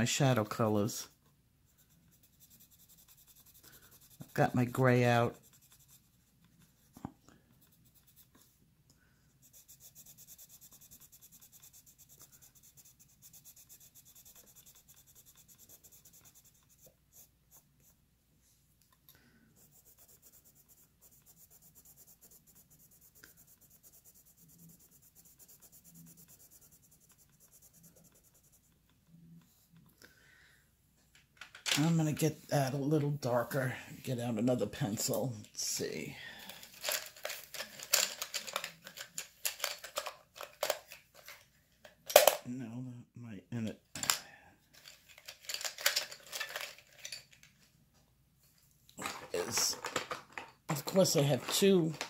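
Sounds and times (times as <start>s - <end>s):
colored pencil scratching on paper: 0.1s - 8.6s, 9.3s - 18.0s, 19.5s - 29.9s.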